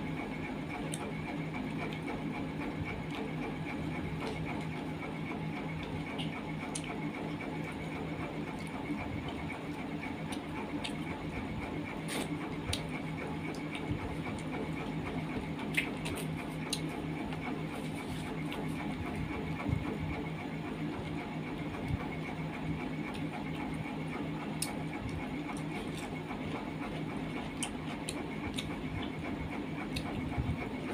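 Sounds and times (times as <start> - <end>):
steady low hum: 0.0 - 30.9
small clicks and smacks: 5.7 - 7.0, 12.1 - 17.5, 24.5 - 26.1, 29.9 - 30.2
chewing and mouth sounds: 5.7 - 7.8, 8.5 - 11.4, 12.0 - 19.2, 24.4 - 30.3.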